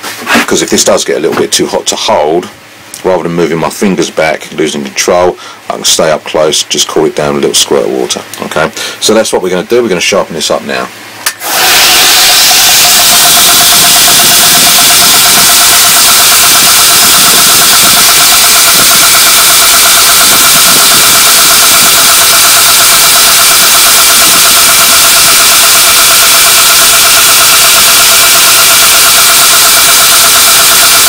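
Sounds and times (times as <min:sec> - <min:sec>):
belt grinder whining: 0:11.4 - 0:31.0
drill bit grinding on belt: 0:11.4 - 0:31.0.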